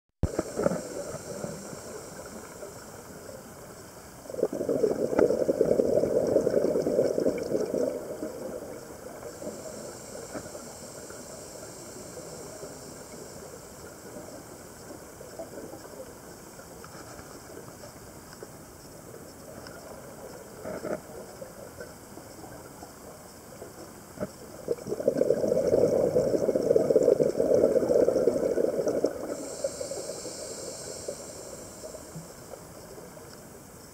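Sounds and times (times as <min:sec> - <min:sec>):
faint underwater hiss: 0:00.2 - 0:33.9
diver's exhaled bubbles gurgling: 0:04.2 - 0:09.8, 0:24.6 - 0:30.1
faint clicks: 0:13.8 - 0:24.8, 0:31.9 - 0:33.9.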